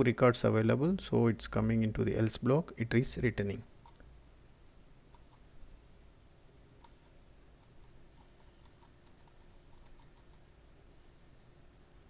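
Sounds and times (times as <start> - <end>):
low room hum: 0.0 - 12.0
keyboard clicks: 6.7 - 10.4.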